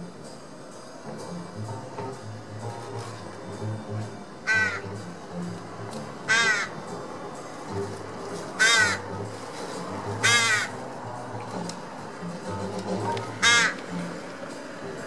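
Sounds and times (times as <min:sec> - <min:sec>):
crow cawing: 0:04.4 - 0:05.0, 0:06.2 - 0:06.9, 0:08.6 - 0:09.1, 0:10.2 - 0:10.8, 0:13.2 - 0:14.2.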